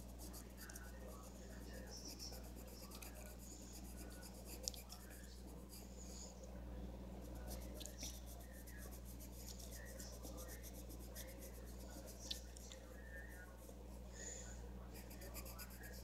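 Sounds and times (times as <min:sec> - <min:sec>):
pencil scratching on paper: 0:00.0 - 0:05.9, 0:07.2 - 0:12.2, 0:14.9 - 0:16.0
steady low hum: 0:00.0 - 0:16.0.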